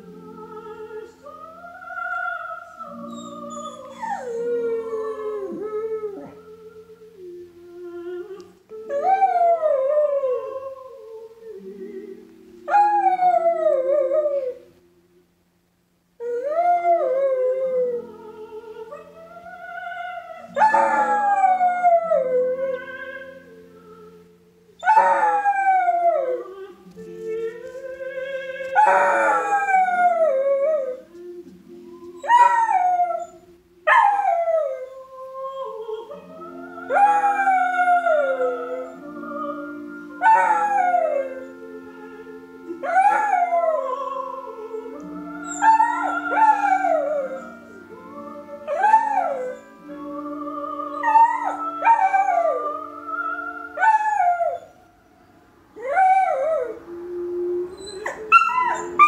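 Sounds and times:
soprano singing with orchestra: 0.0s - 15.3s, 16.2s - 54.9s, 55.7s - 59.0s
dog howling: 3.0s - 6.4s, 20.3s - 23.3s, 24.8s - 26.7s, 28.8s - 31.0s, 40.2s - 41.5s, 42.8s - 47.8s, 50.9s - 52.8s, 55.8s - 59.0s.

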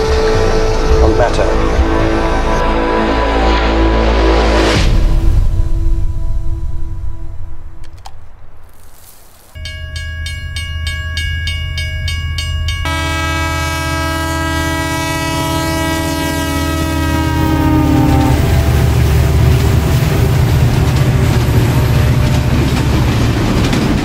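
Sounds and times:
train horn: 0.0s - 4.5s, 12.8s - 19.4s
train rumbling: 0.0s - 8.9s, 9.6s - 24.0s.

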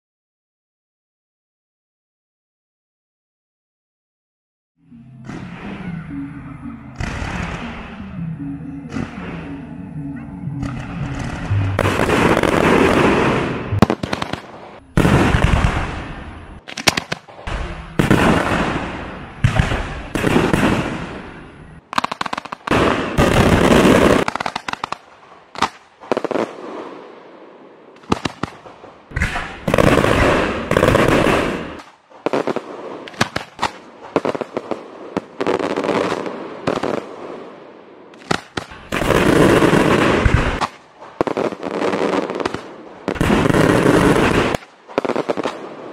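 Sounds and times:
firework bursts: 10.6s - 27.0s, 28.0s - 37.2s, 38.1s - 45.9s
firework crackles: 11.1s - 21.3s, 28.0s - 37.2s, 38.2s - 45.9s.

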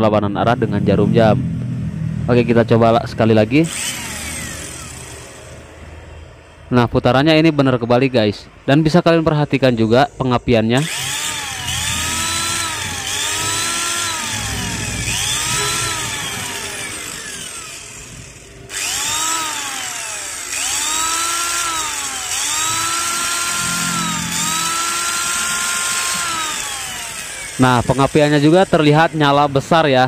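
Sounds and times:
angle grinder motor whine: 3.5s - 5.9s, 10.8s - 29.8s.

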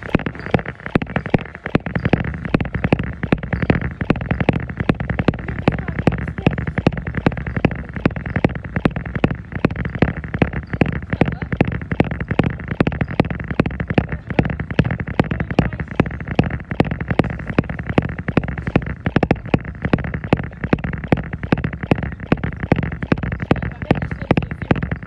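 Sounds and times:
treadmill running: 0.0s - 25.0s.

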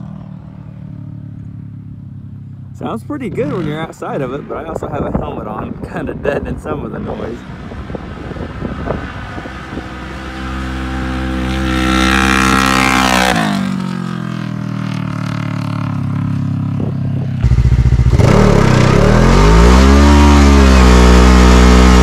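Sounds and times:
engine revving under acceleration: 7.6s - 14.0s, 17.4s - 22.0s
close engine with even pulse: 17.4s - 22.0s.

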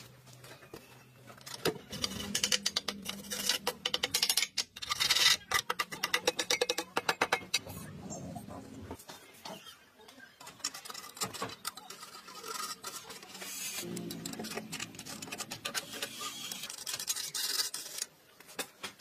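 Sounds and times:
metal tool scratching metal casing: 1.5s - 7.6s, 10.5s - 18.1s.

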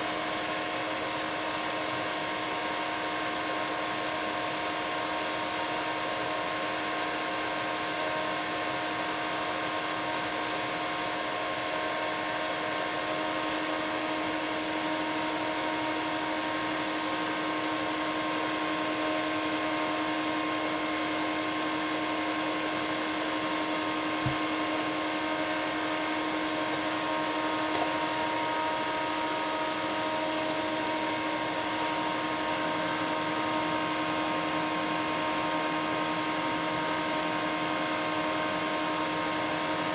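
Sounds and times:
induction heater humming: 0.0s - 39.9s
soft low knock: 24.2s - 24.4s.

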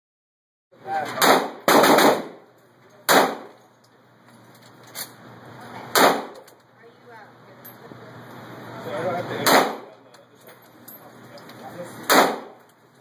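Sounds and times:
pistol shots echoing indoors: 1.2s - 2.4s, 12.1s - 12.6s.

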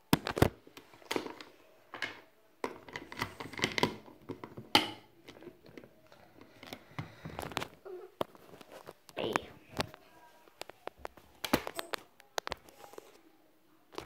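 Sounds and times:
handling rustling and scraping: 5.2s - 13.3s.

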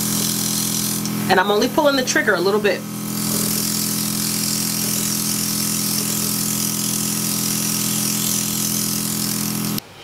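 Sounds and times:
airbrush hissing: 0.0s - 9.8s
compressor humming: 0.0s - 9.8s.

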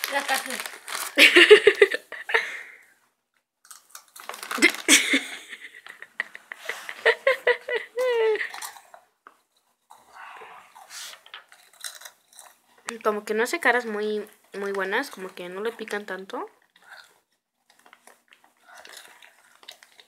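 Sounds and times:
child chewing crunchy chips: 0.0s - 2.5s, 3.6s - 13.0s, 16.6s - 20.0s.

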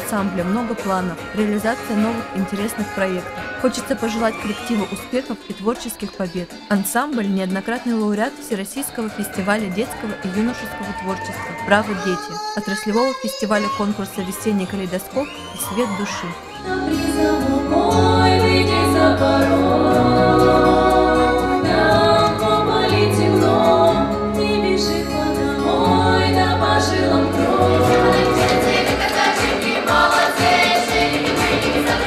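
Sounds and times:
instrumental accompaniment: 0.0s - 32.0s
female choir singing folk song: 16.6s - 32.0s.

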